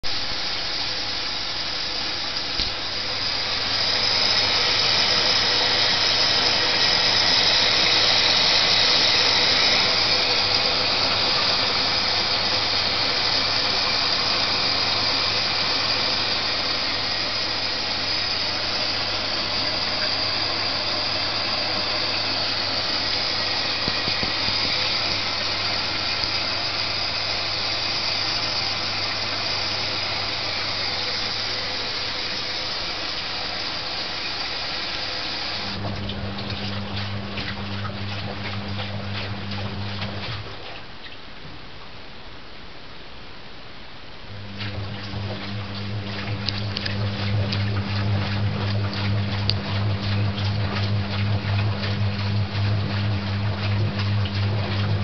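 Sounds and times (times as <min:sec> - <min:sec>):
water rushing into washing machine: 0:00.0 - 0:41.3, 0:44.2 - 0:55.0
low hum: 0:44.3 - 0:55.0.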